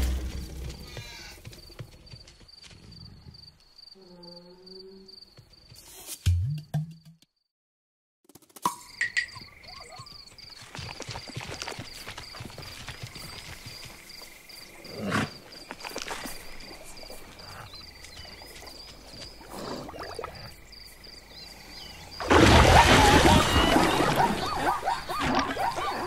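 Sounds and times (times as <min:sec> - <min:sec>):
soft drinking gulps: 0:19.4 - 0:20.6
loud splash and commotion: 0:22.2 - 0:24.7.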